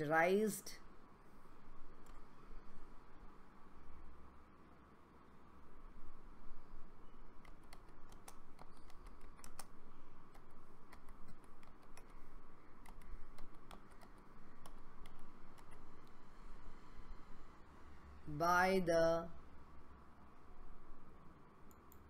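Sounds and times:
keyboard key clicks: 7.4 - 12.2, 12.8 - 16.2.

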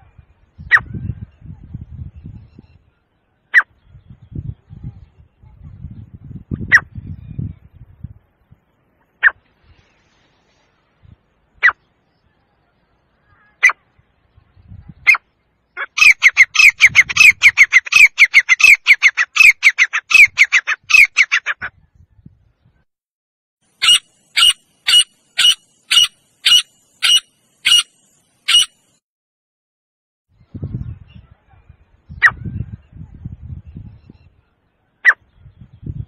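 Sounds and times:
francolin calling: 23.8 - 29.0.

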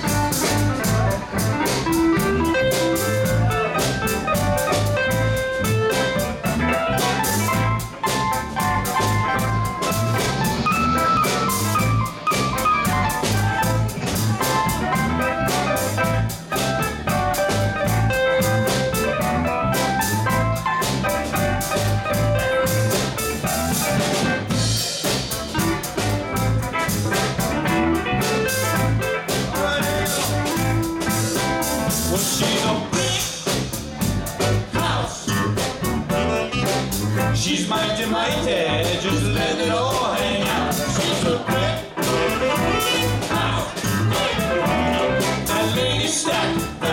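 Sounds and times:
live band playing soul-funk: 0.0 - 46.9.

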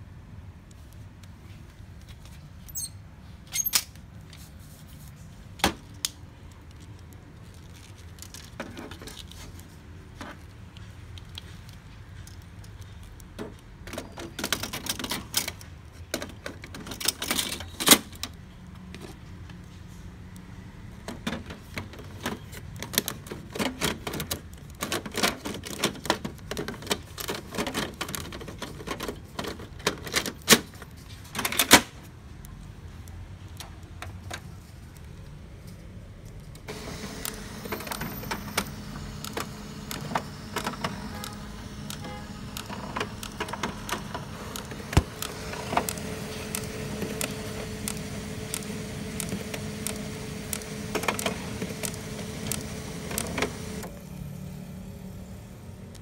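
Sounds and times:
plastic clicks and rattles: 5.6 - 9.6, 21.0 - 31.8, 36.3 - 53.8.

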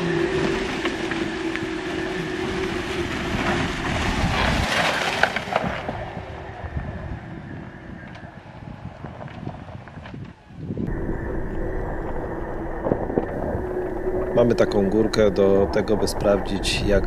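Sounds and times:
tyres crunching through snow: 0.0 - 6.2
drivetrain hum: 10.8 - 17.0.

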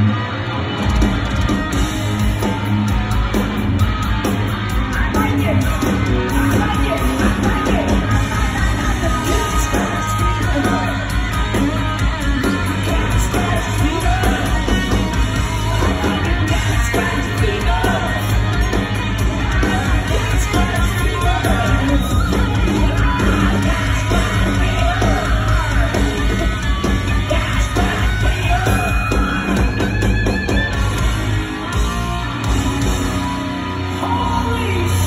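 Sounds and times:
distorted electric guitar: 0.0 - 35.0
live hard rock band: 0.0 - 35.0
people yelling: 32.6 - 35.0.

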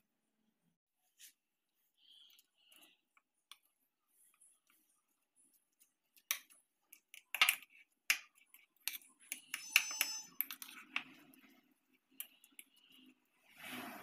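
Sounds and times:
ringing clink: 9.5 - 10.6.

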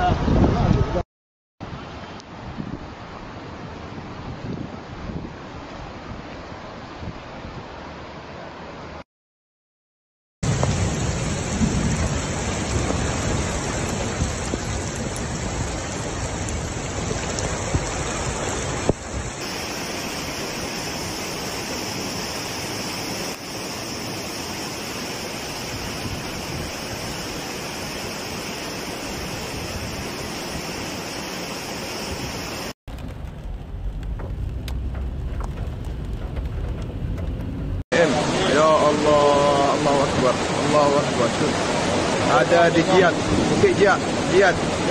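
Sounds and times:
floodwater rushing: 10.4 - 44.9
heavy rain: 10.4 - 44.9
low rumble: 32.9 - 37.8
muffled rain from inside car: 32.9 - 37.8.

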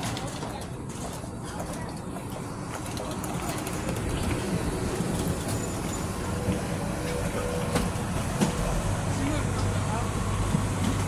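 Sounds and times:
shuttle train running noise: 0.0 - 11.0.

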